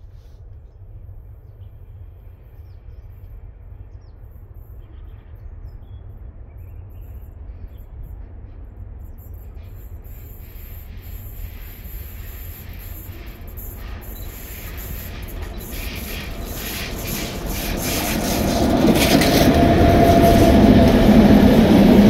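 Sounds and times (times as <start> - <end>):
freight train rumbling: 0.0 - 22.0
wheel and rail noise: 9.4 - 22.0.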